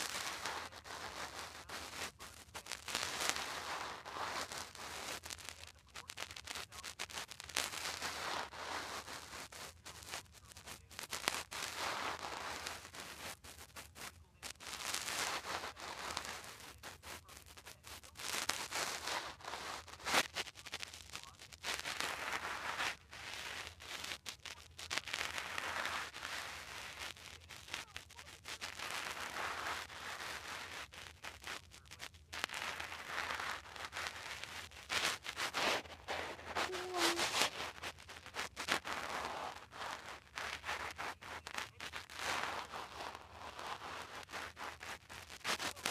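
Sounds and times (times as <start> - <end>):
muffled voice from phone speaker: 15.4 - 19.8, 35.4 - 39.5, 40.5 - 42.7.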